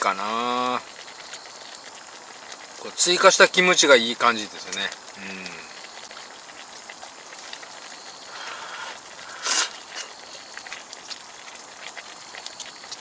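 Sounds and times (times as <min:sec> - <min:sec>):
pot simmering with faint bubbling: 0:00.0 - 0:13.0
person breathing loudly: 0:08.3 - 0:09.8.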